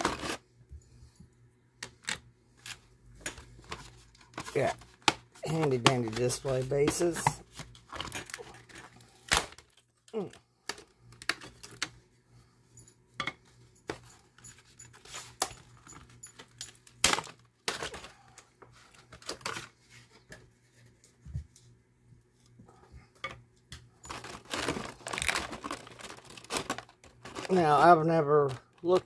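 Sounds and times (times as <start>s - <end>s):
plastic packaging rustling: 0.0s - 0.4s, 2.0s - 9.9s, 14.6s - 20.2s, 24.0s - 29.0s
plastic pieces clicking and rattling: 24.1s - 29.0s.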